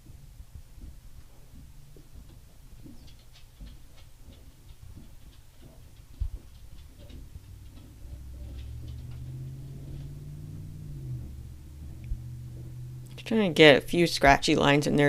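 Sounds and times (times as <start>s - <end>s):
low hum: 0.0s - 15.0s
dull low thump: 3.6s - 13.2s.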